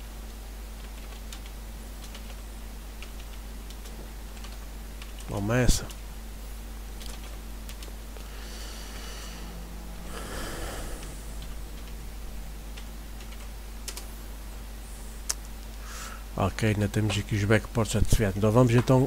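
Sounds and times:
low electrical hum: 0.0 - 19.0
keyboard typing: 0.8 - 2.4, 3.0 - 5.3, 7.0 - 8.0, 12.7 - 14.1
soft breath-like rush: 8.2 - 11.8, 15.8 - 16.3.

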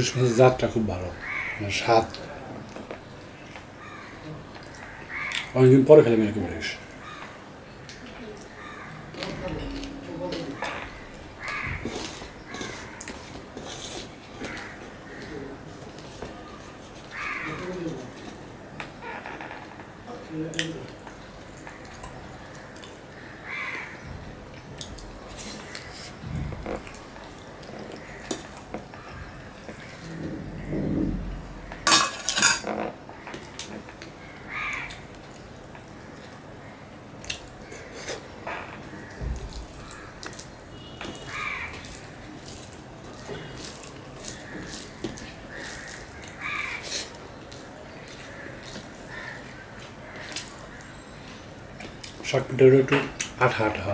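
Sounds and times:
soft chewing: 20.5 - 23.9, 24.5 - 30.7, 33.2 - 52.2
steel bowl clinking on plate: 31.8 - 32.7.

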